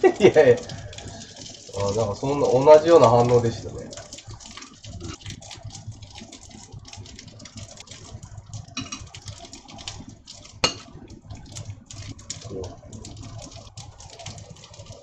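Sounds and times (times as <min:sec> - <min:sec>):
rice and chicken sizzling: 0:00.0 - 0:15.0
chopsticks tapping in pan: 0:08.7 - 0:09.8, 0:10.4 - 0:11.0.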